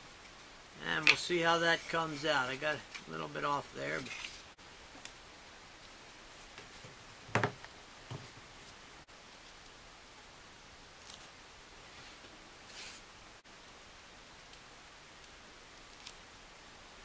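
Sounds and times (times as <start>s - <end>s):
wooden pieces knocking on workbench: 7.3s - 8.3s.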